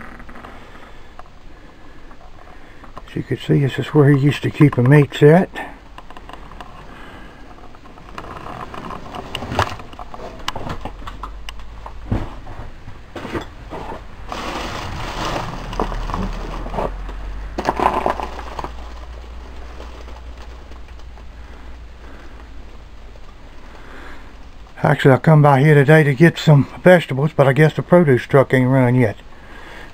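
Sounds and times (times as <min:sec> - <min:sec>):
rustling: 0:00.0 - 0:29.9
handling noise with scrapes: 0:06.0 - 0:11.1, 0:12.1 - 0:21.1
footsteps: 0:11.9 - 0:22.4.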